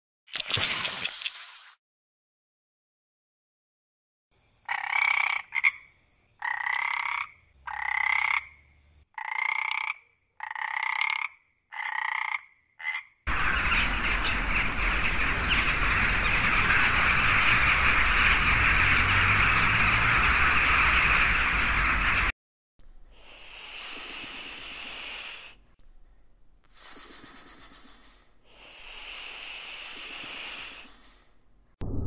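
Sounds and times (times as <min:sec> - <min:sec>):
chorus of calling animals: 0:13.3 - 0:22.3.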